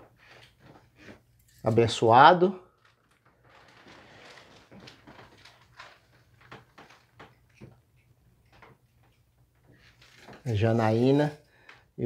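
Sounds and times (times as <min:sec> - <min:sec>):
rustling: 0:02.6 - 0:11.9.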